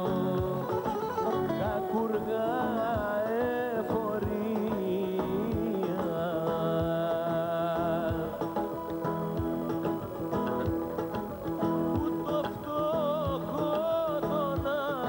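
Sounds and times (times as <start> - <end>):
man singing into microphone: 0.0 - 9.5, 12.0 - 15.0
acoustic guitar: 0.0 - 15.0.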